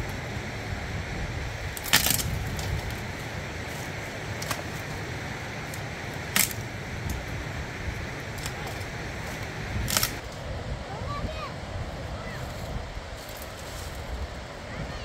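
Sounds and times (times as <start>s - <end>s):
river rushing: 0.0s - 15.0s
dry branches snapping: 1.6s - 10.4s.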